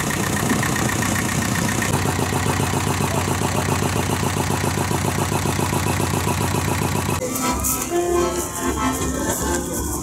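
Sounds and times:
stationary engine running: 0.0 - 7.3.

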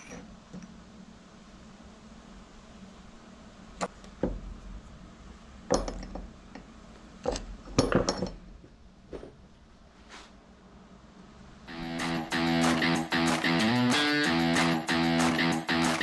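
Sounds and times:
metal parts knocking and clinking: 5.7 - 6.3, 7.2 - 8.5.

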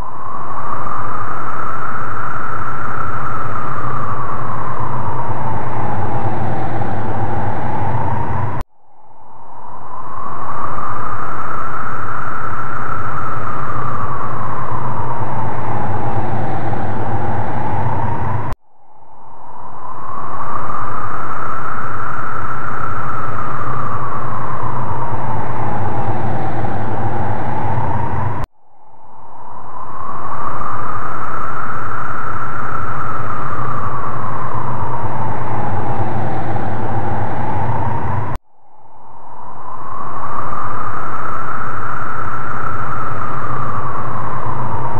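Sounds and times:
whistling tone: 0.0 - 38.4, 39.4 - 44.9
eerie rushing wind-like noise: 0.0 - 44.9
low hum: 0.0 - 44.9
loud whooshing noise: 2.0 - 8.7, 9.7 - 18.6, 20.2 - 28.5, 30.1 - 44.9
low rumble: 2.8 - 11.4, 12.8 - 20.6, 22.7 - 30.8, 32.6 - 40.7.

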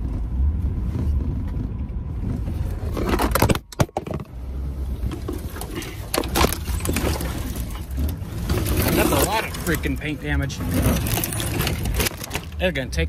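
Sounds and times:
suv engine rumbling: 0.0 - 13.0
branches scraping and clattering: 5.0 - 12.8.

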